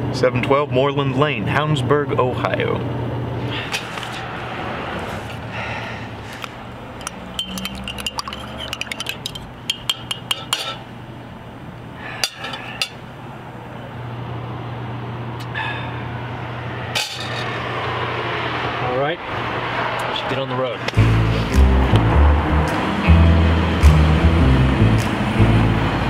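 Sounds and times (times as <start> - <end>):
crockery clinks: 7.0 - 10.8
spoon clinking in ceramic mug: 7.0 - 10.8.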